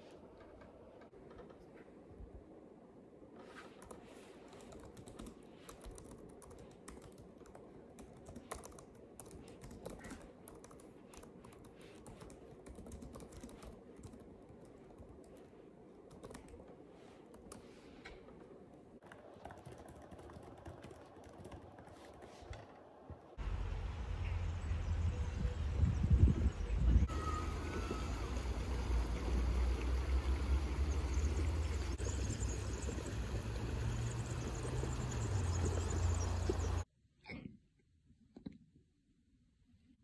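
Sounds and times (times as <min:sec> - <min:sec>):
laptop keyboard typing: 0:03.8 - 0:17.7, 0:19.0 - 0:22.7.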